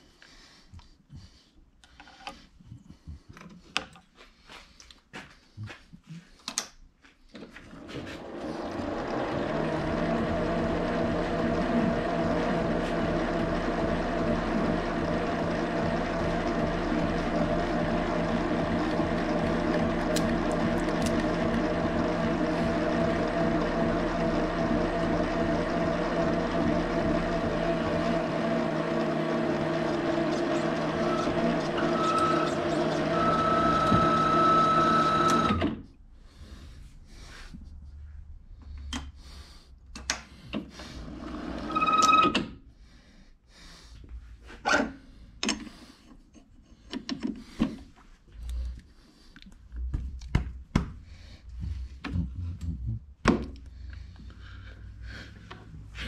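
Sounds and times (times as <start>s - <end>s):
metal lathe motor whine: 8.3s - 35.7s.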